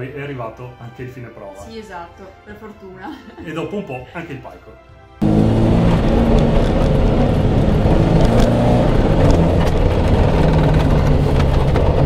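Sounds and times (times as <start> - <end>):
car engine running hard: 5.2 - 12.0
road noise: 5.2 - 12.0.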